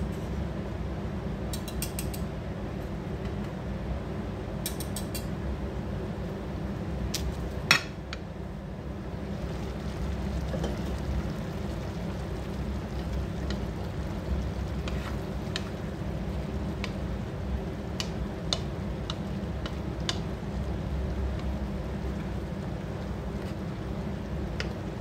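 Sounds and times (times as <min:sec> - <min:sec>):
steady low rumble: 0:05.5 - 0:25.0.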